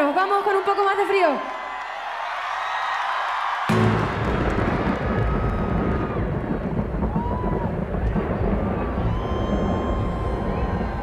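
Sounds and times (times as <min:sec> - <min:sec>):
concert crowd noise: 0:00.0 - 0:11.0
distorted low-end rumble: 0:03.7 - 0:11.0.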